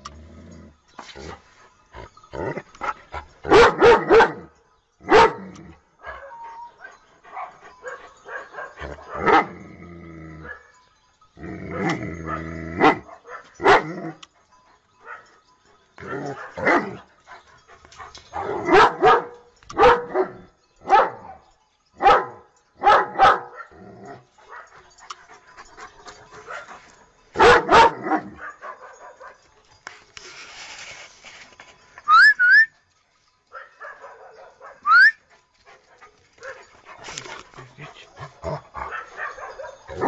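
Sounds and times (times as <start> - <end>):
dog barking: 3.5 - 4.4, 5.1 - 5.4, 6.0 - 9.5, 12.3 - 13.9, 16.3 - 16.9, 18.4 - 21.4, 22.0 - 23.8, 27.4 - 29.4, 33.5 - 35.1, 38.8 - 40.0.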